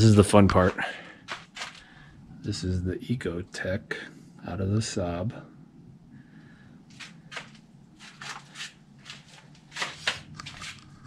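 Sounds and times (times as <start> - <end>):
footsteps: 0.0 - 1.9, 6.9 - 11.0
faint low hum: 0.0 - 11.0.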